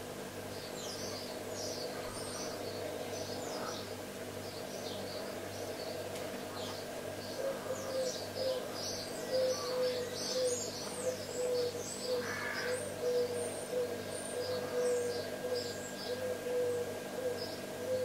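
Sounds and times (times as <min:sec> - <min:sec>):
steady low hum: 0:00.0 - 0:18.0
small birds chirping: 0:00.5 - 0:16.3.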